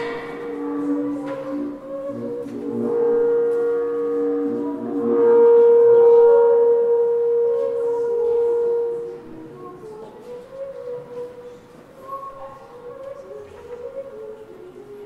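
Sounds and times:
ambient drone music: 0.0 - 10.2.

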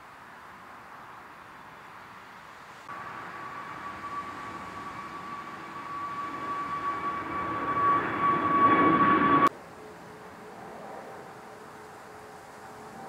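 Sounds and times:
deep rumble: 2.9 - 9.5
jet engines whining: 2.9 - 9.5
jet exhaust rushing: 2.9 - 9.5.

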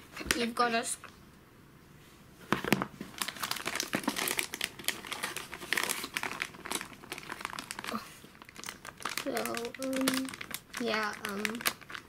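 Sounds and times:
plastic packaging crinkling: 2.6 - 12.0.

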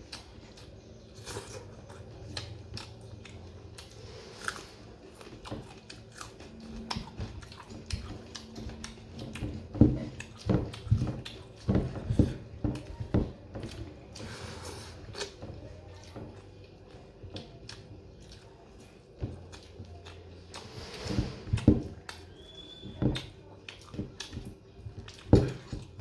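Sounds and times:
chewing and wet mouth clicks: 0.0 - 4.0, 5.2 - 9.6, 16.6 - 20.8, 22.0 - 25.3.

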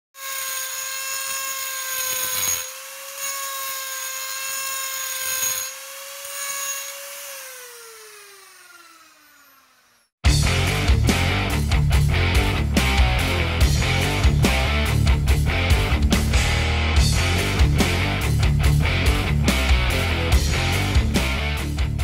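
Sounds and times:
grinding stone on metal: 0.2 - 7.1
die grinder whining: 0.2 - 10.2.

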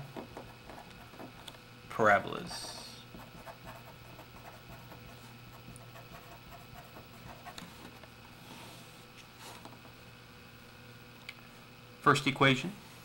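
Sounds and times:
felt-tip marker scratching paper: 0.3 - 1.5, 2.4 - 7.7.

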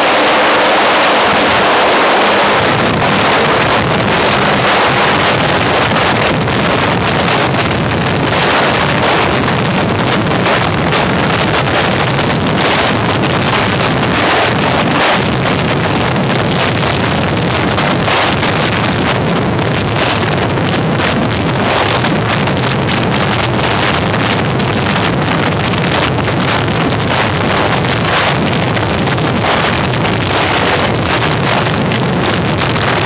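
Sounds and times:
helicopter hovering: 0.0 - 23.8
rotor wind buffeting microphone: 0.0 - 33.0.

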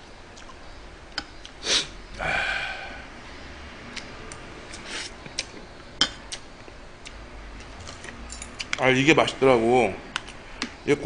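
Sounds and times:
sharp breath: 1.6 - 3.5.

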